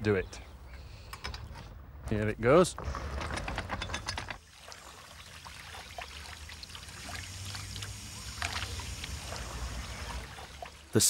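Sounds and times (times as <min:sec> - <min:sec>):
water trickling and swirling: 0:02.9 - 0:11.0.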